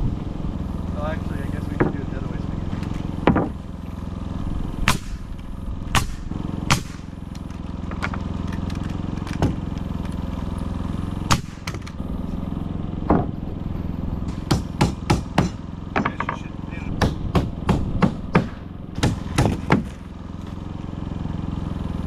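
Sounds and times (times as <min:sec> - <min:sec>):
motor droning: 0:00.0 - 0:22.0
hammer blows on wood framing: 0:01.6 - 0:02.3, 0:02.9 - 0:03.6, 0:14.3 - 0:20.1.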